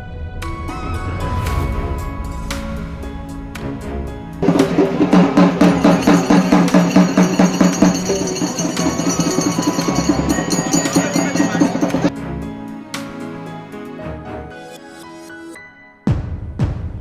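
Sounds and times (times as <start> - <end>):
drums beaten fast: 4.4 - 12.1.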